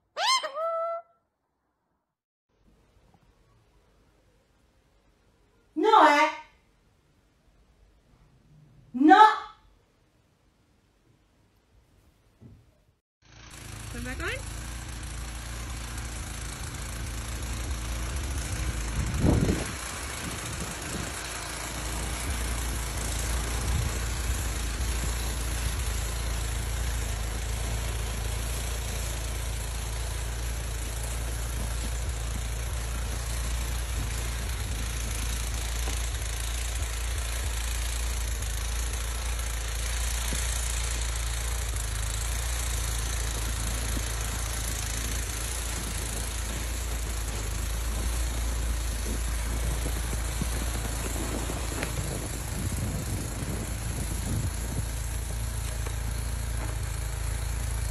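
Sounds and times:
vehicle engine rumbling: 13.2 - 57.9.

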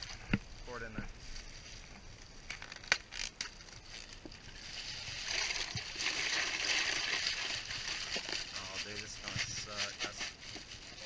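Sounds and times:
plastic bag crinkling: 1.2 - 11.0
ice clattering and splashing: 2.5 - 11.0.

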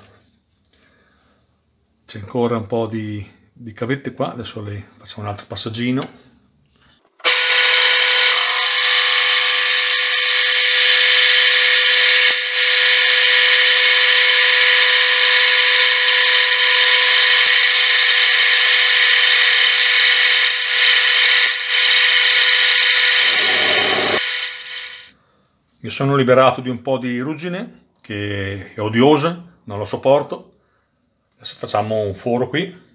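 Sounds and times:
metal lathe cutting steel: 7.2 - 25.1.

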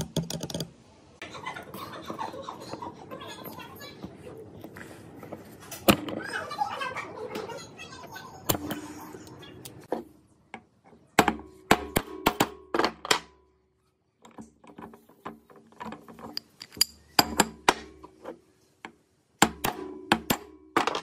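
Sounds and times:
metal tools knocking on gearbox housing: 14.2 - 18.1.

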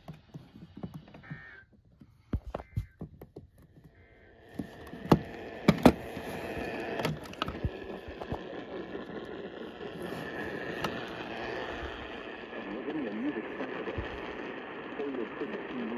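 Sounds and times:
sharp clicks and crackles: 0.0 - 15.9
radio static hiss: 2.4 - 3.0, 4.0 - 15.9.

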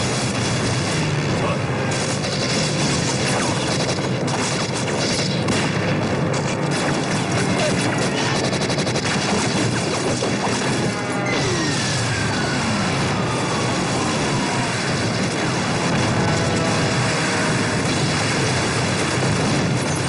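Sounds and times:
dense gunfire: 0.0 - 20.0
explosions: 0.0 - 20.0
automatic gunfire burst: 1.9 - 6.0, 6.6 - 20.0.

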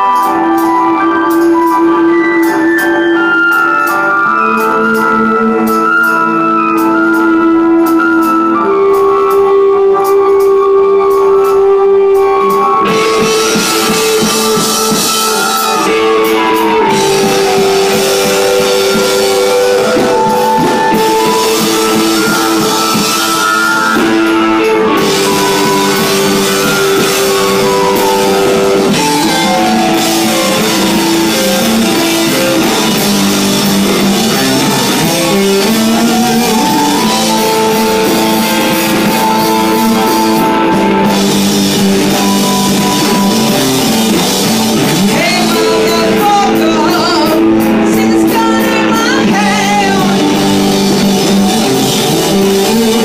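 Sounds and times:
drums: 0.0 - 53.0
electric guitar long gliding notes: 0.0 - 53.0.

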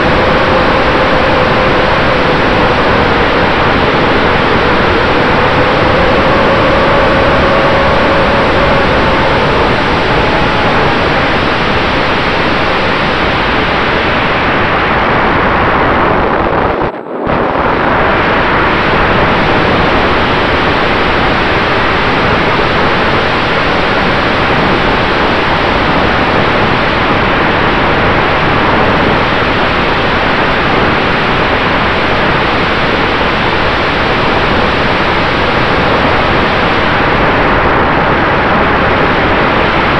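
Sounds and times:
electric motor and propeller whine: 0.0 - 13.9
wind rushing over microphone: 0.0 - 39.9.

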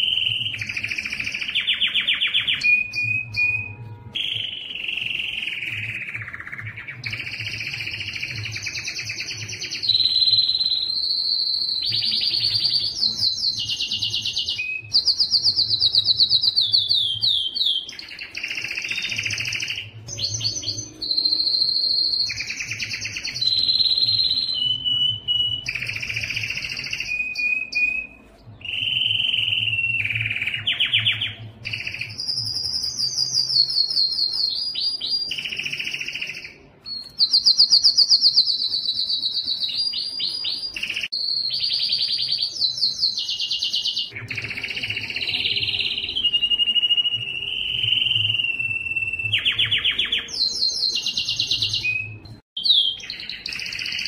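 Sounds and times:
canary singing: 0.0 - 54.0.

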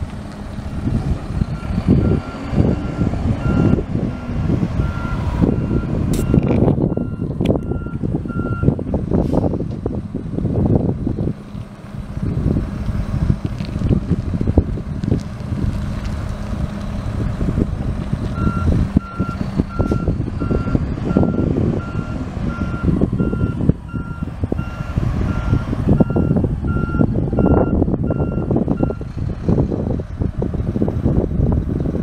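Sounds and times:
diesel engine rumbling: 0.0 - 32.0
reversing alarm beeping: 1.6 - 8.8, 18.4 - 29.0.

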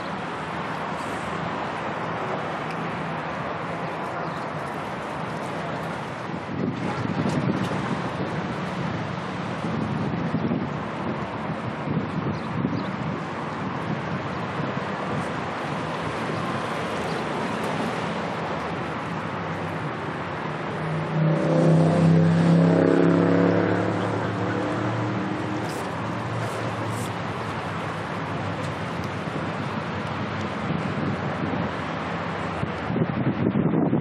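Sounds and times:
wind noise on microphone: 0.0 - 34.0
engine passing close by: 13.0 - 33.5.

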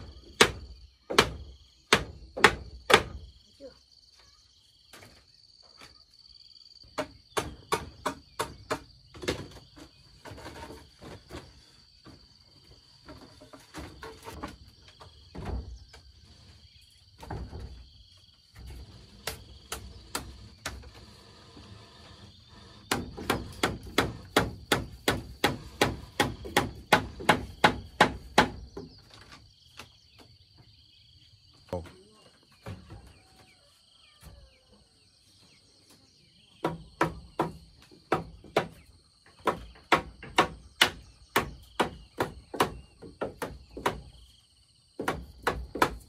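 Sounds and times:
high insect drone: 0.0 - 32.6.

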